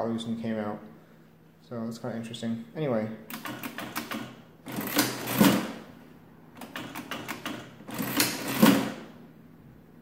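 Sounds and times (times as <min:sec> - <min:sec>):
adding machine keys clicking: 0:03.3 - 0:05.8, 0:06.6 - 0:09.0
adding machine mechanism clatter: 0:03.3 - 0:05.9, 0:06.6 - 0:09.1.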